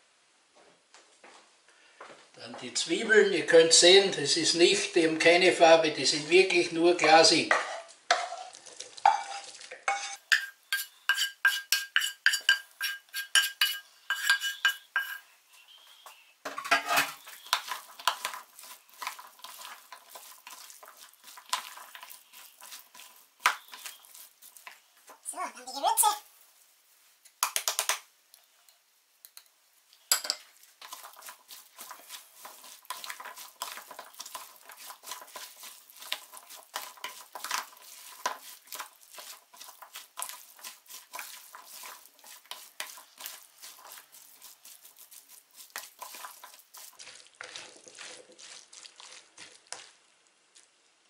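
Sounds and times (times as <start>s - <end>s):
wooden spoon scraping bowl: 7.0s - 25.3s, 30.6s - 49.9s.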